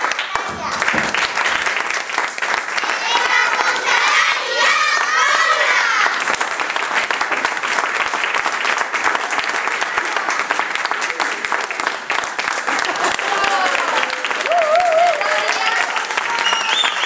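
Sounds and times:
audience applauding: 0.0 - 17.0
crowd shouting and cheering: 0.2 - 1.4, 3.0 - 6.3, 12.9 - 17.0.

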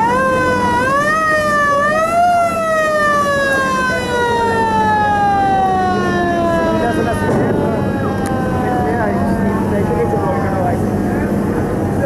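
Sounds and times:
boat siren horn: 0.0 - 10.5
steady low hum: 5.2 - 12.0.

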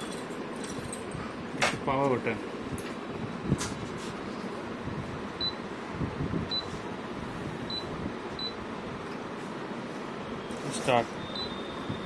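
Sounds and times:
steady background hum: 0.0 - 12.0
short high-pitched beeps: 11.2 - 12.0.

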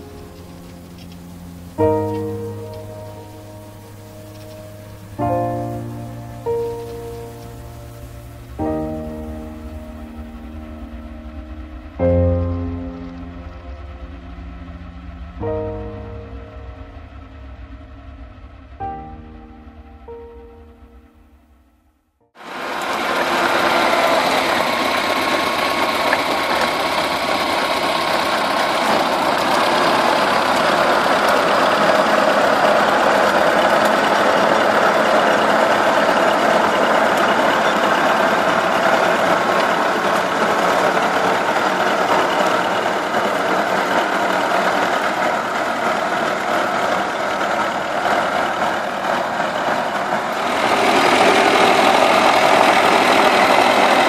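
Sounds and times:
rotary tiller through soil: 0.0 - 11.0, 22.4 - 54.0
tractor diesel engine running: 0.0 - 21.8, 22.4 - 54.0.

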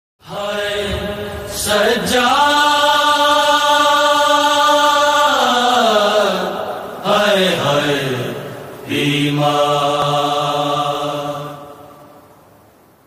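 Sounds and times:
man singing long wordless note: 0.2 - 12.2.

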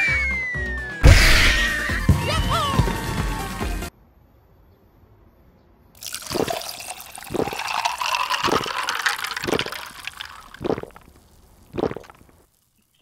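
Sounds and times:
liquid gurgling from bottle: 6.0 - 12.4.

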